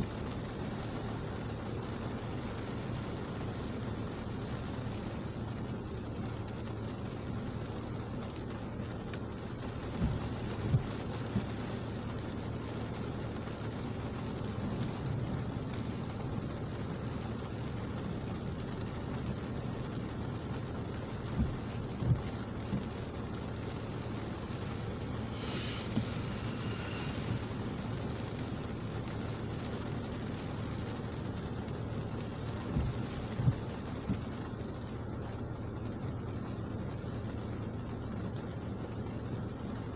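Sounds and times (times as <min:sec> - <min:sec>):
windscreen wiper thumps: 0:00.0 - 0:36.6
rain on a car windscreen: 0:00.0 - 0:39.9
low hum: 0:21.0 - 0:34.9.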